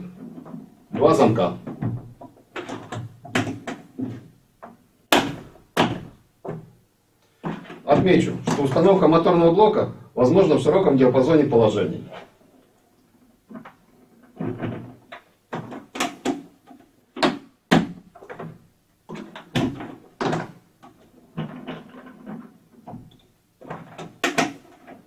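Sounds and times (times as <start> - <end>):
plastic clicks and clunks: 13.5 - 25.0.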